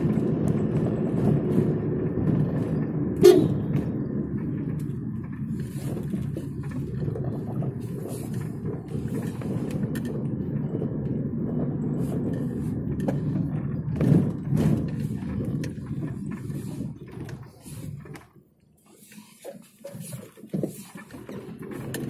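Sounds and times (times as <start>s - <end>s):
car engine and road noise: 0.0s - 22.0s.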